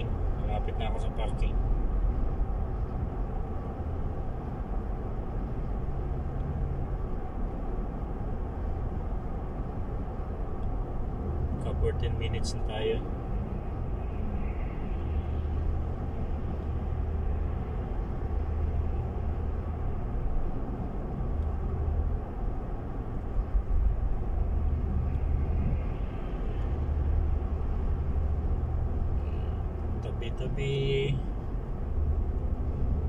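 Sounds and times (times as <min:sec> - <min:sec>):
car engine and road rumble: 0:00.0 - 0:33.0.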